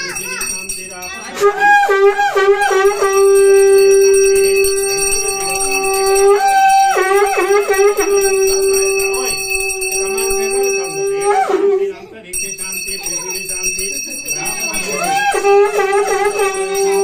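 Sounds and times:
bell ringing: 0.0s - 11.6s, 12.3s - 17.0s
conch shell blown: 1.3s - 12.1s, 14.9s - 17.0s.

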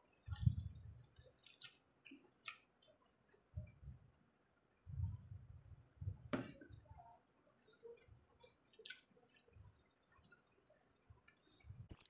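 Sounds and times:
quiet chewing: 0.2s - 3.5s, 7.6s - 12.0s
hand squishing rice on plate: 0.3s - 3.0s.

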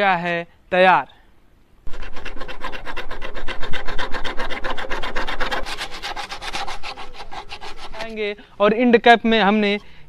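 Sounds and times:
saw rasping through plastic pipe: 1.9s - 8.4s.

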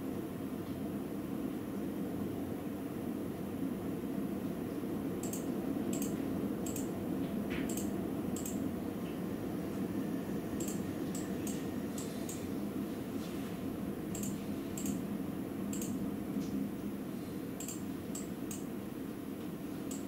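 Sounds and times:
sharp ticks close by: 5.2s - 6.9s, 14.2s - 15.0s.

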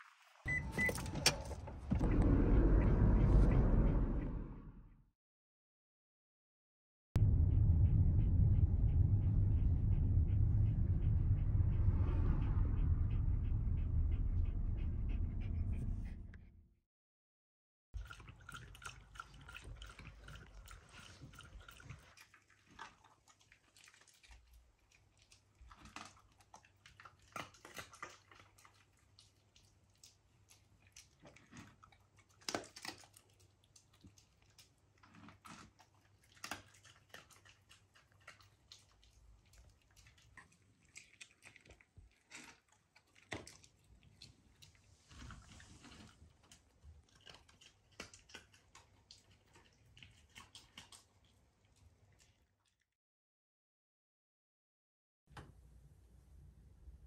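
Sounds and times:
car rumbling on bumpy road: 1.2s - 4.9s
dog panting: 8.5s - 16.5s
dog crunching dry kibble: 30.9s - 51.3s.

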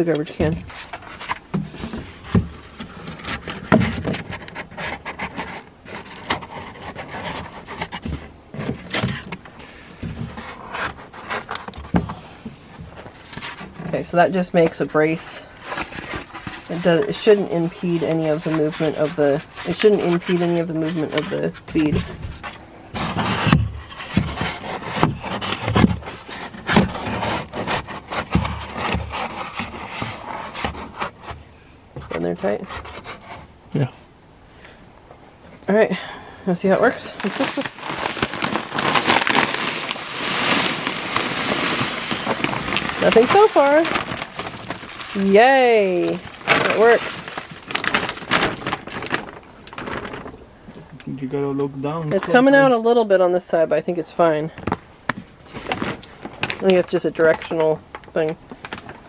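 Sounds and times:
cardboard scraping inside plastic bin: 0.0s - 33.5s, 36.6s - 50.5s.

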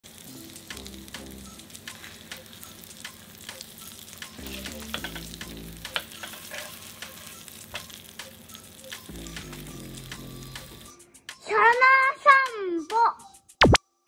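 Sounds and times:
bread sizzling in butter: 0.0s - 11.0s.

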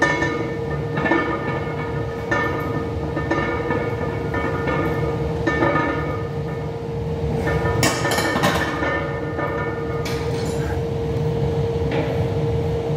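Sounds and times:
barbell plates clinking: 0.0s - 6.7s, 7.4s - 10.7s
constant hum: 0.0s - 12.9s.

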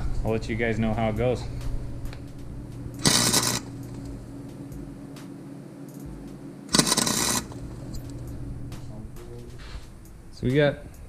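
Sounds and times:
arc welder crackling: 0.0s - 11.0s
welder low hum: 0.0s - 11.0s.

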